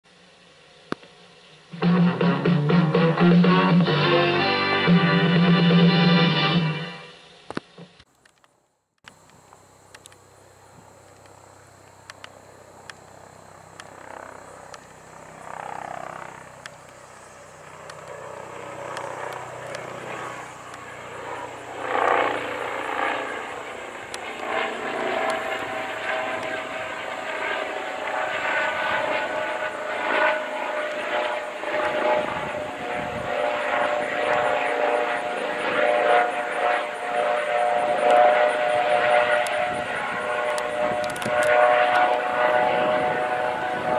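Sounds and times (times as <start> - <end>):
turbine whine: 0.1 - 43.9
helicopter rotor chop: 12.8 - 43.9.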